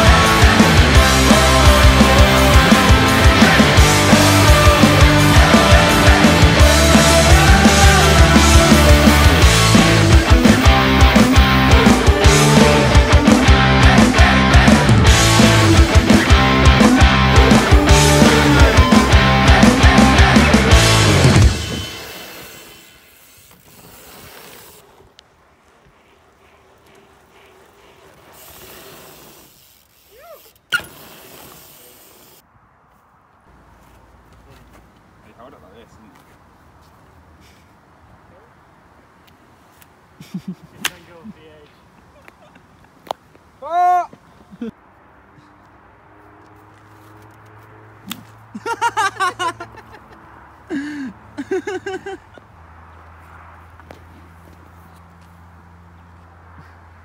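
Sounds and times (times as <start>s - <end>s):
rock music: 0.0s - 22.0s
rising and falling squeak: 21.4s - 24.9s
sharp crack: 40.8s - 41.2s, 47.4s - 48.4s.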